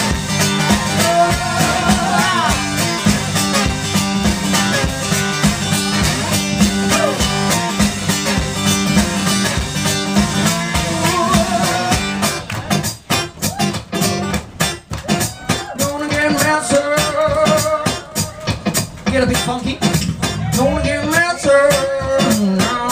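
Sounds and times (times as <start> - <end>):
man singing: 0.0 - 3.4, 6.8 - 7.6, 10.3 - 12.5, 15.6 - 22.9
blues-rock band playing: 0.0 - 22.9.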